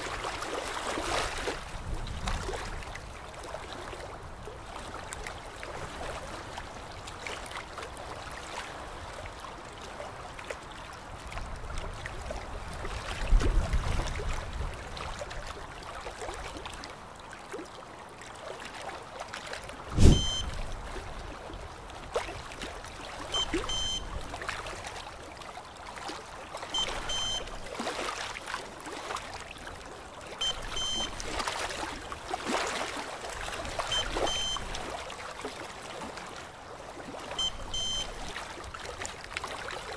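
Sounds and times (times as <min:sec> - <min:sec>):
sharp thump: 0:20.0 - 0:20.5
curing light beeps: 0:20.0 - 0:20.6, 0:23.3 - 0:24.1, 0:26.8 - 0:27.5, 0:30.4 - 0:31.2, 0:33.9 - 0:34.7, 0:37.4 - 0:38.2.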